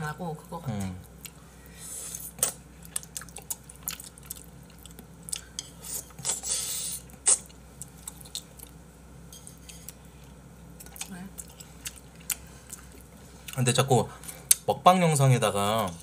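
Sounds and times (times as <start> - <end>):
chewing and wet mouth noises: 2.1 - 8.8, 9.7 - 14.7.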